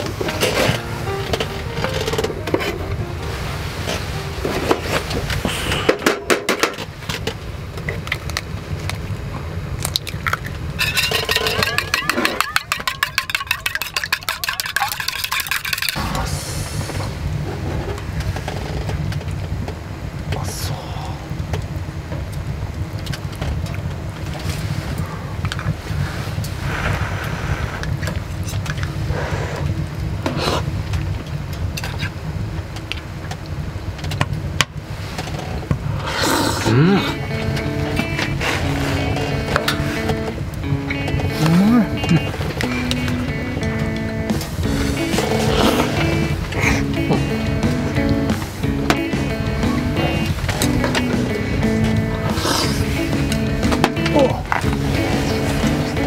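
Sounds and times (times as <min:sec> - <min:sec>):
steady low rumble: 0:00.0 - 0:11.8, 0:15.0 - 0:56.0
low background noise: 0:00.0 - 0:56.0
eggs cracked on metal cup: 0:09.9 - 0:16.0
chopsticks clicking on metal pot: 0:10.8 - 0:16.0
cups knocking: 0:10.8 - 0:16.0.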